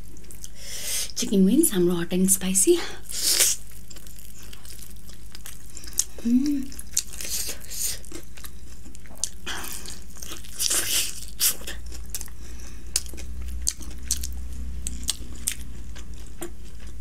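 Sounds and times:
crunchy chewing of chicken wing: 3.4s - 17.0s.

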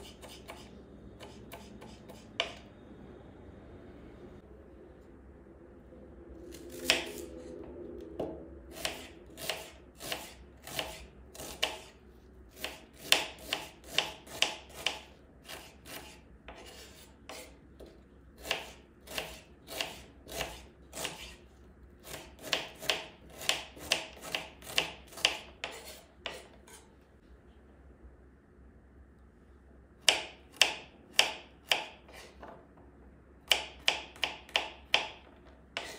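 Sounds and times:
knife chopping on wooden board: 0.0s - 2.6s, 8.8s - 11.9s, 12.6s - 21.4s, 22.0s - 26.8s, 30.0s - 32.3s.

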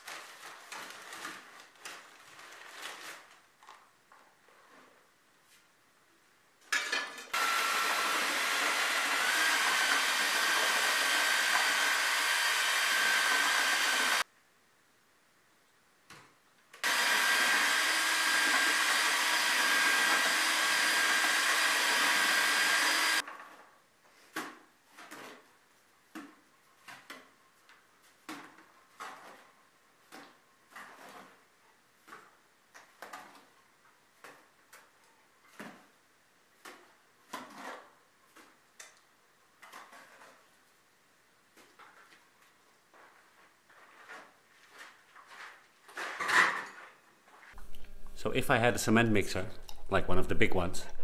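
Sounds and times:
power tool motor running: 7.4s - 14.2s, 16.8s - 23.2s
short scrapes and knocks: 28.2s - 33.5s, 43.0s - 48.2s.

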